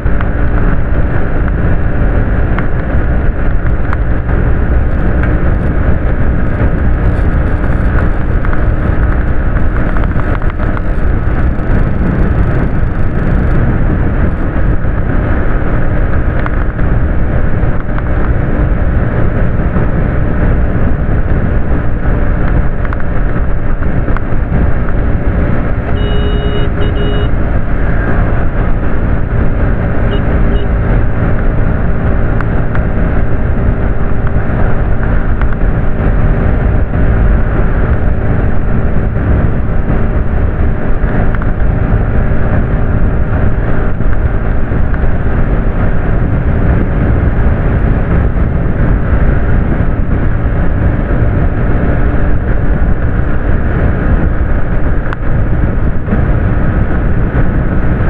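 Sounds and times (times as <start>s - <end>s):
motorcycle engine cruising: 0.0s - 58.0s
wind rush: 0.0s - 58.0s.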